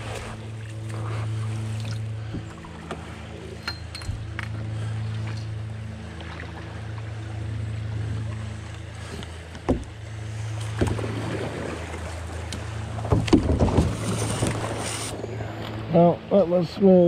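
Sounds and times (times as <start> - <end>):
paddle splashes: 0.0 - 16.0
river water rushing: 0.0 - 17.0
knocks against canoe: 9.5 - 10.0, 10.6 - 11.1, 13.0 - 14.8.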